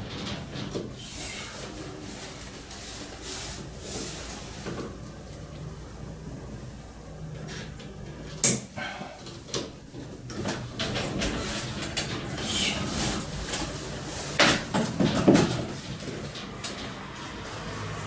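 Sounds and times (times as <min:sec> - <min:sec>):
rustling and scraping: 0:00.0 - 0:05.6, 0:07.4 - 0:18.0
metal parts knocking and clattering: 0:10.0 - 0:17.1.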